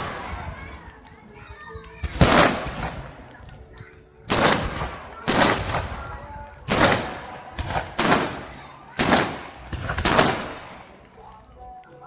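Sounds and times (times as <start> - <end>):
firework booms: 2.1 - 3.0, 6.7 - 10.7.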